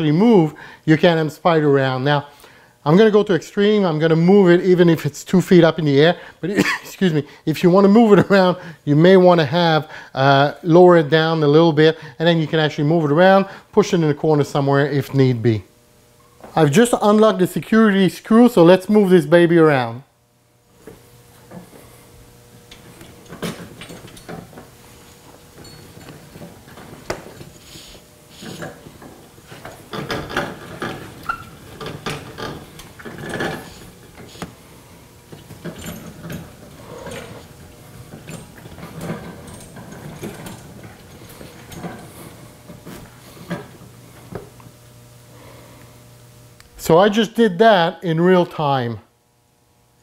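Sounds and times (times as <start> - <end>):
lift rolling on caster wheels: 20.8 - 44.6.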